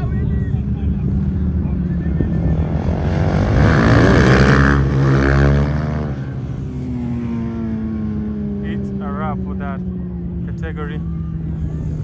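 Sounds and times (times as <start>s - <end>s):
low engine drone: 0.0s - 12.0s
superbike passing at speed: 2.3s - 9.9s.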